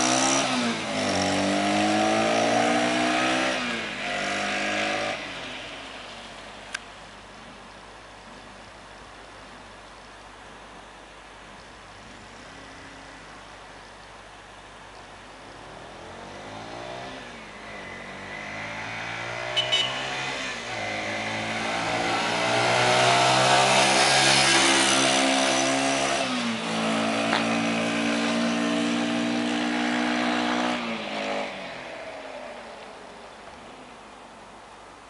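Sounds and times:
motorcycle engine accelerating past: 0.0 - 5.2, 15.6 - 32.7.

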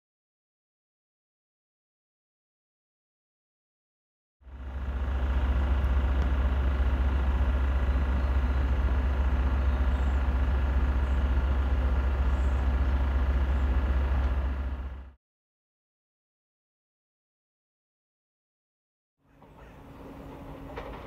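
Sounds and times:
diesel engines rumbling: 4.4 - 15.2, 19.3 - 21.0.

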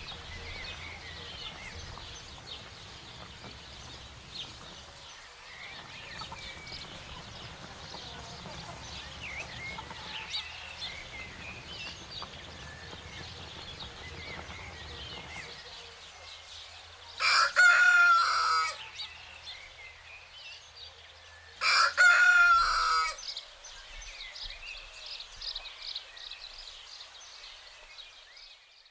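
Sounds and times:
small birds chirping: 0.0 - 28.9
rooster crowing: 17.2 - 18.8, 21.6 - 23.2.

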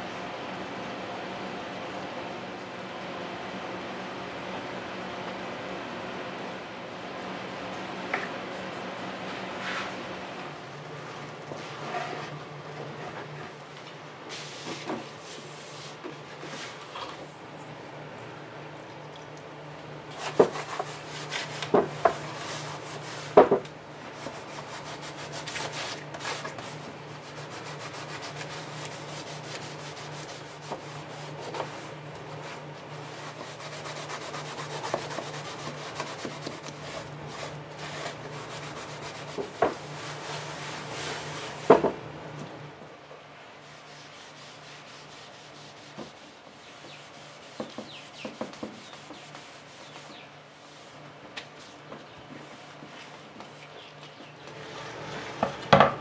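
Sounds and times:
hand rubbing on wooden desk: 43.7 - 51.0.

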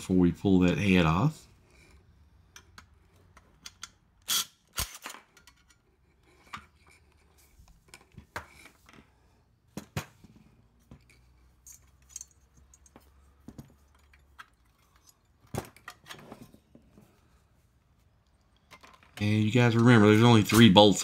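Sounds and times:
metallic clicks and clinks: 11.0 - 16.1.

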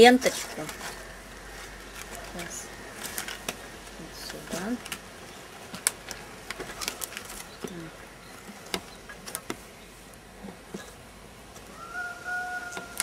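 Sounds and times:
plastic strips clicking and crackling: 1.9 - 7.8.

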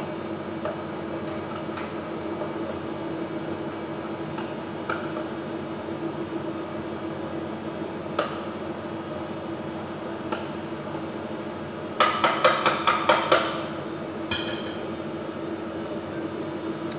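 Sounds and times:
fan hum: 0.0 - 16.9.

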